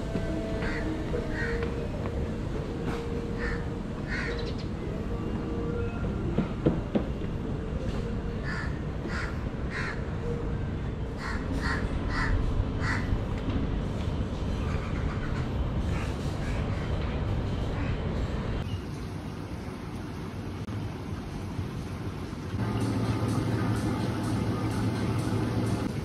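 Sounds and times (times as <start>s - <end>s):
bird calling: 3.4s - 4.8s.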